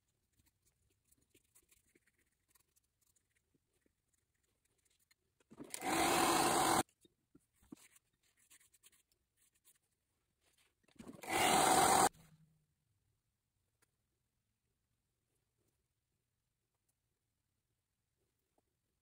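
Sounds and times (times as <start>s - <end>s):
motor hum winding down: 5.7s - 6.8s, 11.2s - 12.1s
hair dryer blowing air: 5.8s - 6.8s, 11.2s - 12.1s.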